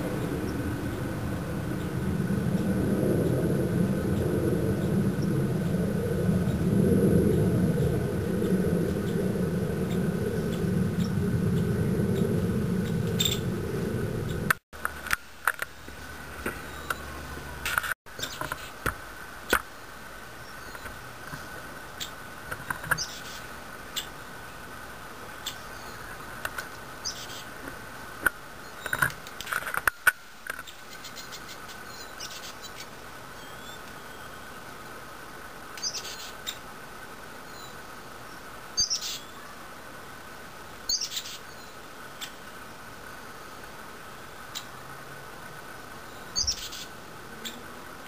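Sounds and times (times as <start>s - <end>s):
woodpecker fledglings squeaking: 12.8s - 13.5s, 40.9s - 42.4s, 46.1s - 47.6s.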